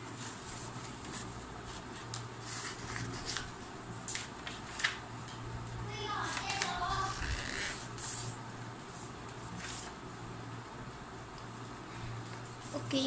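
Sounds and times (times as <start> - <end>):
steady low hum: 0.0 - 13.0
paper rustling and crackling: 0.1 - 5.4, 6.1 - 8.4.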